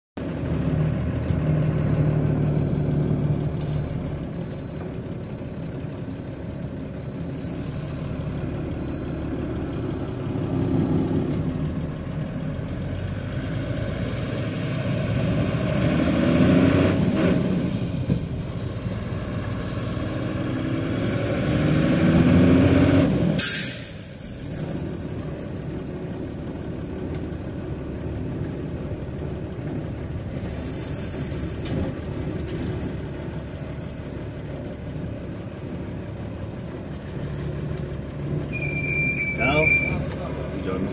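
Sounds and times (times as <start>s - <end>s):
truck diesel engine running: 0.2s - 40.9s
regular beeps: 1.6s - 11.8s
air brake hiss: 23.4s - 24.7s.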